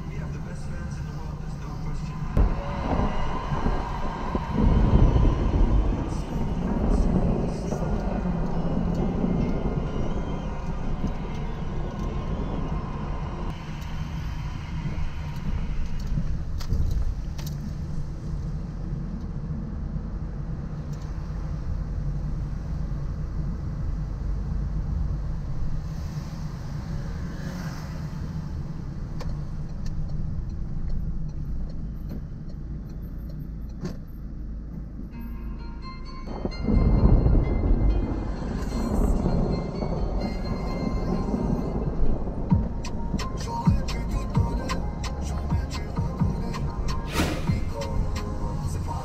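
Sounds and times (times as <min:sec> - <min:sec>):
car engine and road rumble: 0:00.0 - 0:49.0
tyres hissing on wet road: 0:00.1 - 0:16.6, 0:25.5 - 0:29.6, 0:44.7 - 0:49.0.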